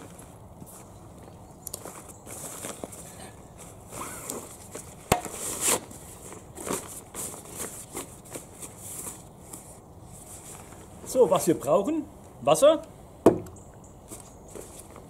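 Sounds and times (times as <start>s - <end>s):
fabric rustling and scraping: 1.8s - 11.3s, 14.1s - 15.0s.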